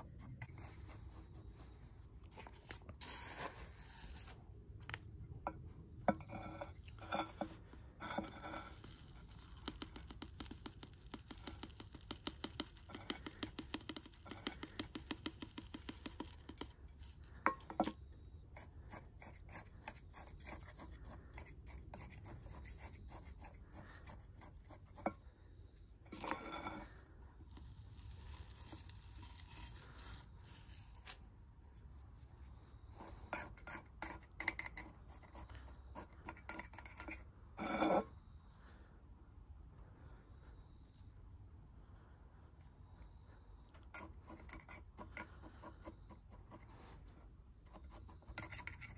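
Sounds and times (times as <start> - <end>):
tweezers scraping through gravel: 2.4 - 5.0, 8.0 - 16.6.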